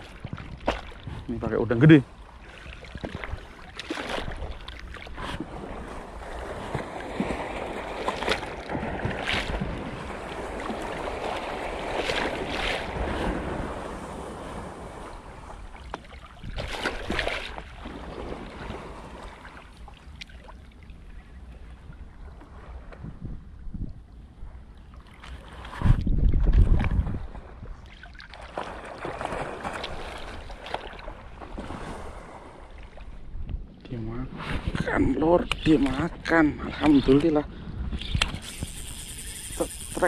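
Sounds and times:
wind buffeting microphone: 0:00.0 - 0:02.2, 0:04.2 - 0:19.3, 0:21.5 - 0:24.8, 0:25.6 - 0:27.8, 0:31.2 - 0:40.0
sea waves washing and splashing: 0:00.0 - 0:23.2, 0:25.0 - 0:33.3.

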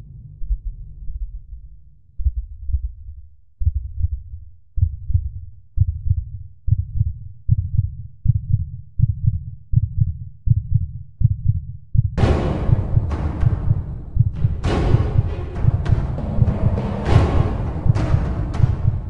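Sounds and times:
heartbeat thumps: 0:00.4 - 0:19.0
loud hit: 0:12.2 - 0:19.0.

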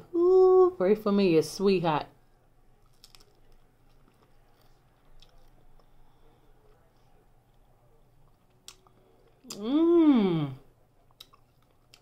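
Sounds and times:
faint chewing: 0:02.7 - 0:09.7, 0:10.5 - 0:12.0.

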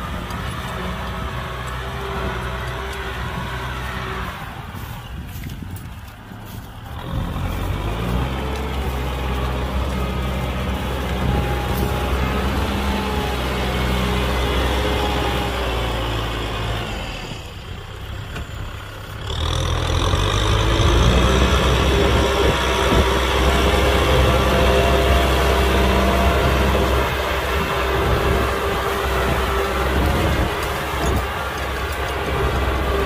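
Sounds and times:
tractor diesel engine running: 0:00.0 - 0:33.0.

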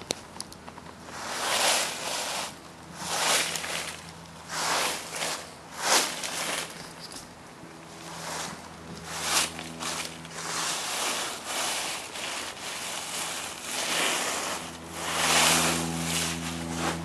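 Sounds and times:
footsteps in dry leaves: 0:00.9 - 0:17.0.

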